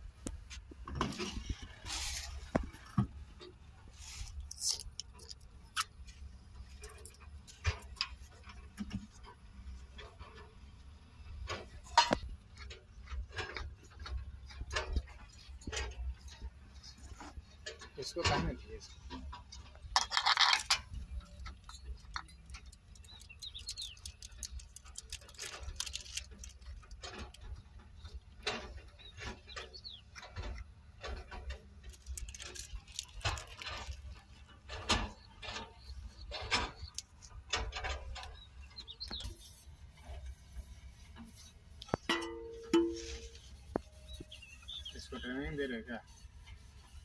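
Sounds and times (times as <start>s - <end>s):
hand tool clicks and scrapes: 0.2s - 9.4s, 11.5s - 45.2s.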